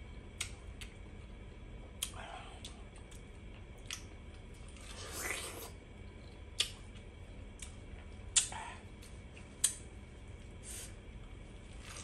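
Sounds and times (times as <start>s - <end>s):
person biting and chewing pineapple: 2.0s - 5.8s, 11.6s - 12.0s.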